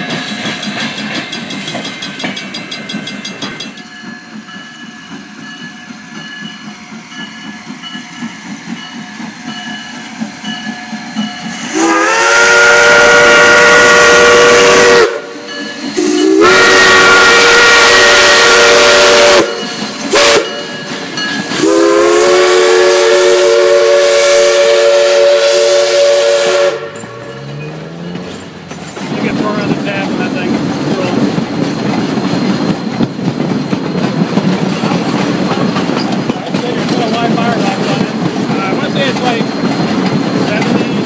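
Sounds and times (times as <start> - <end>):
steam train rolling by: 0.0 - 41.0
steam whistle blasts: 11.5 - 20.8, 21.5 - 27.2.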